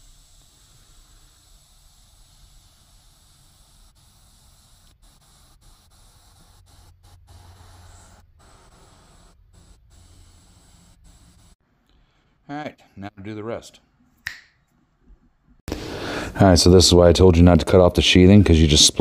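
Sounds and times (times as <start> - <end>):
heat gun hissing: 0.0 - 11.6.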